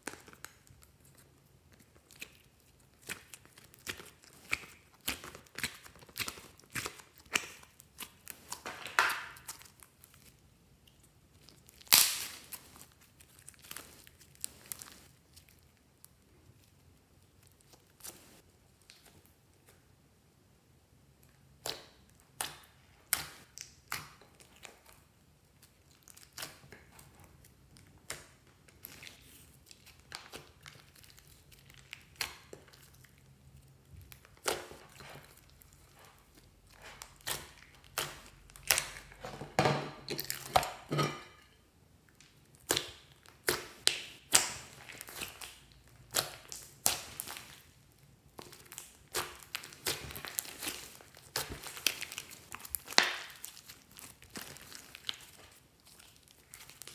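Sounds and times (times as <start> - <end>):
slime sticky clicks and pops: 11.9 - 12.4.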